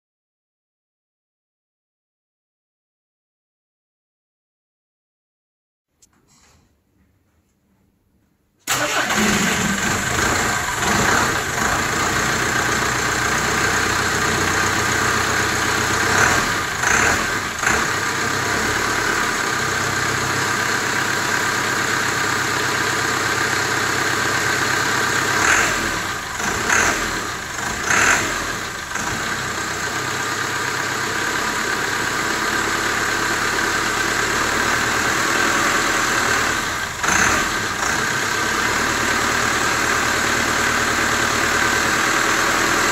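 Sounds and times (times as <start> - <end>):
diesel engine idling: 8.7 - 42.9.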